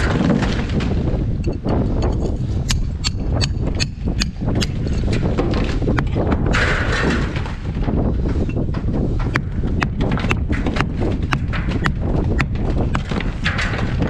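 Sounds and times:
loosened brick and mortar falling: 0.0 - 3.4, 4.8 - 14.0.

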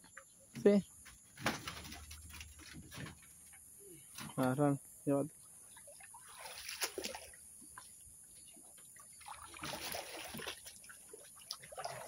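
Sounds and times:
floodwater sloshing and trickling: 5.3 - 12.0
water splashing: 5.4 - 12.0.

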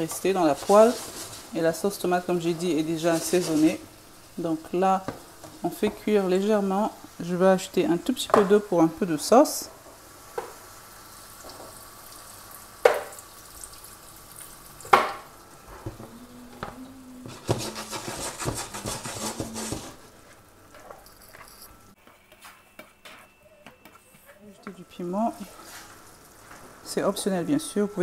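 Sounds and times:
spatula scraping a pan: 0.0 - 3.8, 17.2 - 20.0
food sizzling in a frying pan: 0.0 - 20.2, 25.1 - 28.0.

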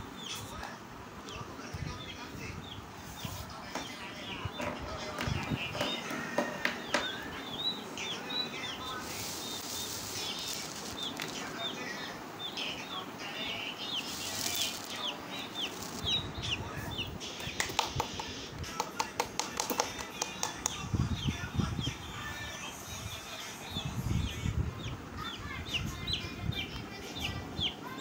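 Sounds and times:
chicks peeping: 0.0 - 28.0
wings flapping: 9.0 - 11.6, 14.0 - 16.2
sharp taps: 17.4 - 20.8.

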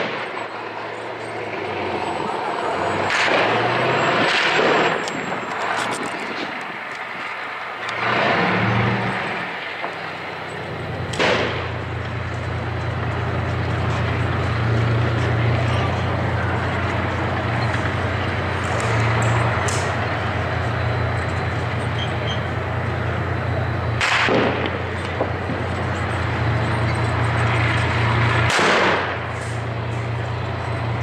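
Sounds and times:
sharp crack: 0.0 - 0.8, 2.9 - 7.1, 11.0 - 21.6, 23.9 - 26.3, 26.9 - 30.3
diesel engine drone: 0.0 - 31.0.

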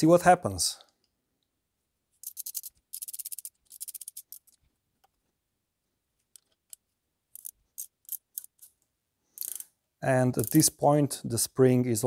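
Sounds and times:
torque wrench ratchet clicking: 2.2 - 4.3, 7.4 - 8.7, 9.4 - 9.6.

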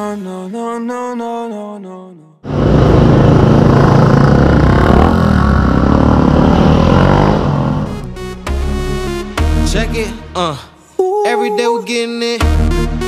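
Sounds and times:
motorcycle engine revving: 2.4 - 8.1.

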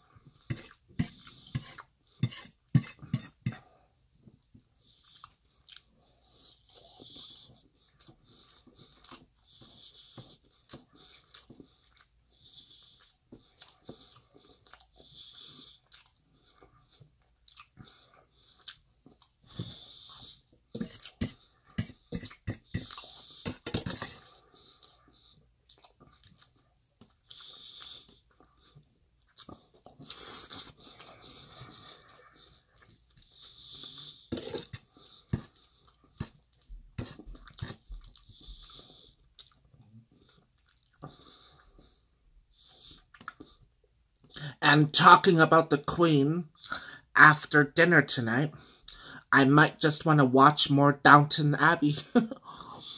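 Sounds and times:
chewing and mouth sounds: 4.3 - 44.5
breathing through nose: 46.7 - 47.1, 48.6 - 49.3.

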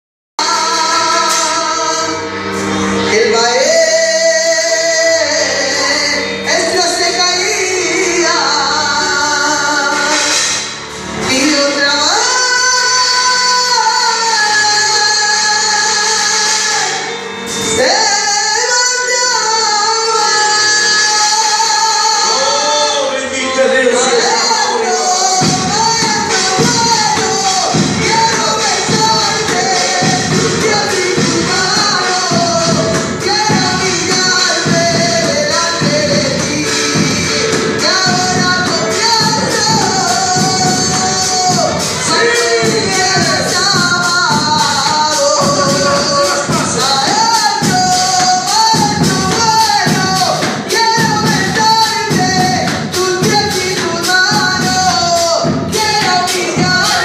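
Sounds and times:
instrumental backing: 0.4 - 57.0
man singing through a pa: 0.4 - 57.0
heavy regular beat: 24.0 - 57.0.

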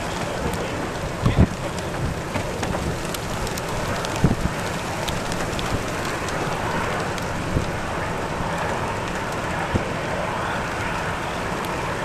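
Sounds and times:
wind and rain buffeting microphone: 0.0 - 12.0.

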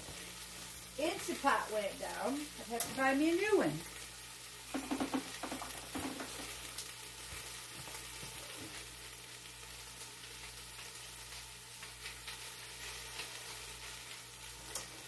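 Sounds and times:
meat sizzling in a pot: 0.0 - 15.0
knocks in the pot: 4.7 - 6.5.

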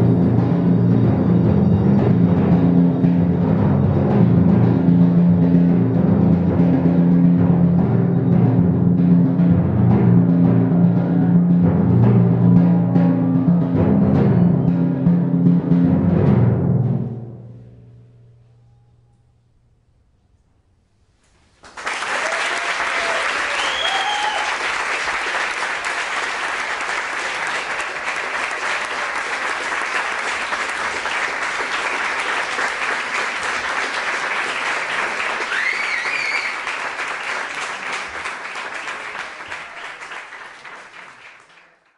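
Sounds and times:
audience applauding: 21.6 - 41.9
audience cheering: 21.7 - 41.9.

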